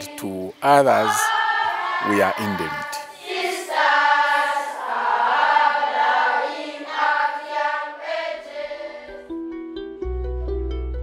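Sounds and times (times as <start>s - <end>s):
choir singing: 0.0s - 9.3s.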